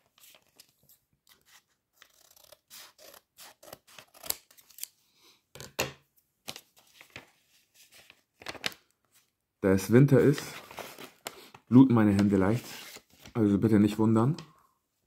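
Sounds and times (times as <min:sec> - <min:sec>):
paper rustling: 0:00.0 - 0:02.1, 0:06.5 - 0:09.3, 0:10.1 - 0:13.4
scissors snipping paper: 0:02.0 - 0:04.9.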